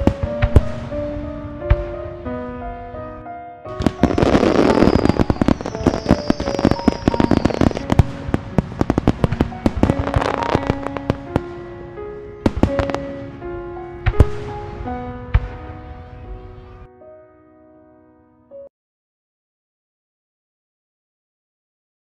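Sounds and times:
fireworks bangs and crackling: 0.0s - 2.0s, 3.7s - 11.8s, 12.4s - 15.8s
background music: 0.0s - 18.7s.

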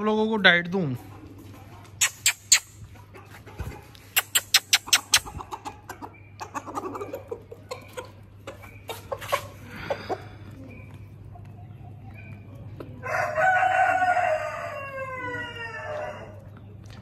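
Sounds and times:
chickens clucking softly: 0.9s - 17.0s.

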